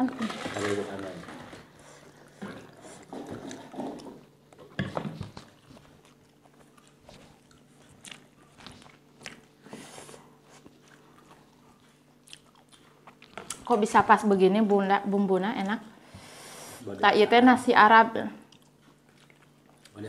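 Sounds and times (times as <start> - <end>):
faint steady hum: 0.0 - 20.0
soft chewing: 1.4 - 13.8, 18.4 - 20.0.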